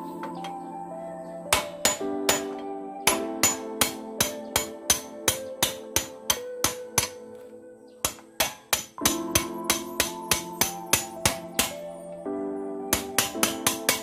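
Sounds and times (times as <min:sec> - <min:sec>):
background music: 0:00.0 - 0:14.0
hammer striking metal rod: 0:01.5 - 0:07.2, 0:08.0 - 0:11.9, 0:12.9 - 0:14.0.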